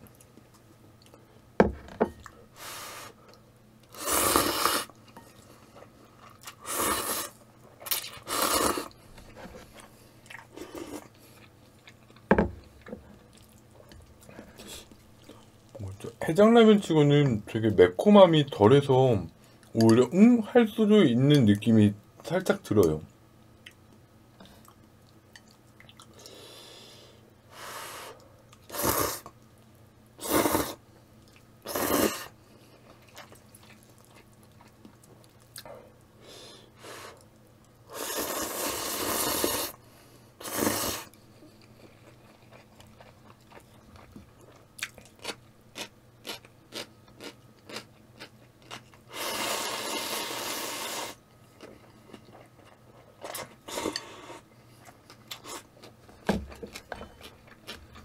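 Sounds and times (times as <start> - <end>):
person slurping noodles: 3.9 - 4.9, 6.6 - 7.4, 8.2 - 9.0, 28.7 - 29.3, 30.2 - 30.8, 31.7 - 32.3, 37.9 - 39.8, 40.4 - 41.1, 49.1 - 51.2.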